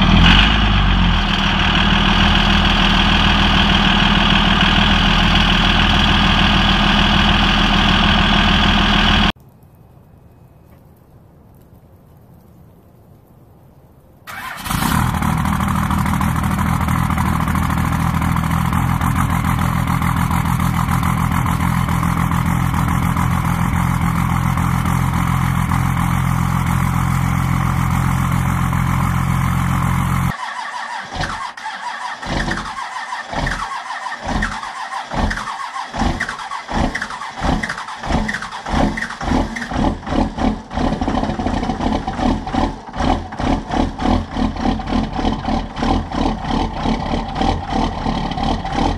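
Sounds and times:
diesel engine idling: 0.0 - 9.4, 14.3 - 48.9
diesel engine starting and running: 0.0 - 9.4, 14.3 - 48.9
engine starter cranking: 14.3 - 24.2, 30.1 - 48.9.

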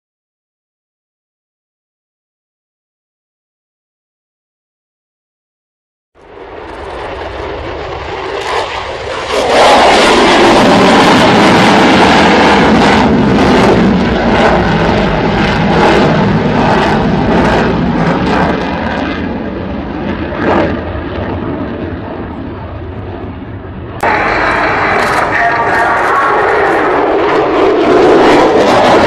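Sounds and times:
fighter jet flying past: 6.2 - 29.0.

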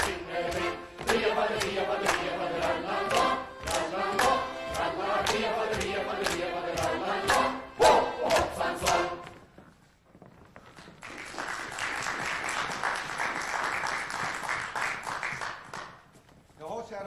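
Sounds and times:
folk dance music with accordion: 0.0 - 9.5
audience applause: 11.0 - 16.0.

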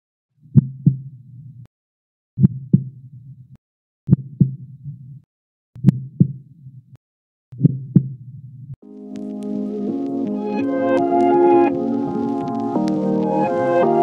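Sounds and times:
heartbeat thumps: 2.4 - 2.9, 4.1 - 5.0, 5.8 - 6.4.

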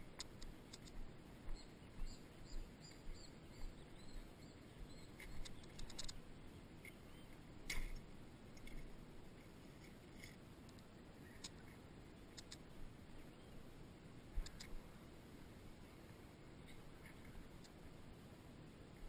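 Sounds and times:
faint high chirps: 1.4 - 7.9
bike clicks and knocks: 7.7 - 8.0.

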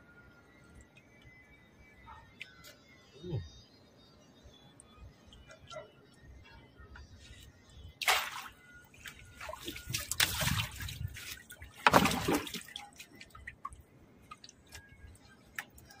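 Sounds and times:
water splashing: 8.0 - 14.8
water dripping: 8.0 - 16.0.

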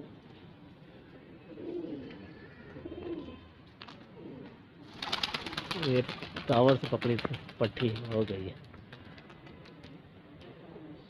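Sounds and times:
pigeons cooing softly: 0.0 - 6.1, 8.8 - 11.0.

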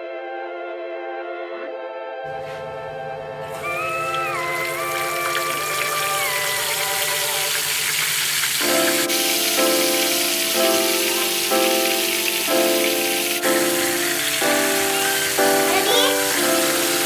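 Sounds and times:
background music: 0.0 - 6.0, 8.6 - 17.0
fish frying in hot oil: 3.4 - 17.0.

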